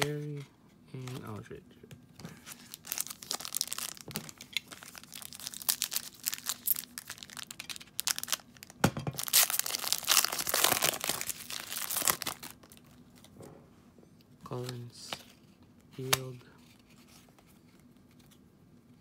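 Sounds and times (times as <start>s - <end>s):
foil wrapper crinkling and tearing: 2.4s - 13.3s.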